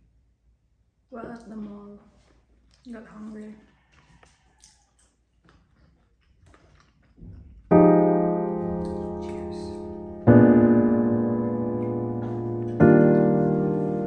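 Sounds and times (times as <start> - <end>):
slow piano chords: 7.7 - 14.0.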